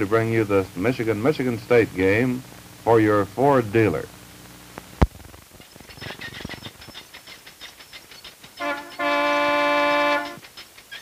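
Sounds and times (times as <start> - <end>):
two-tone car horn: 8.6 - 10.4.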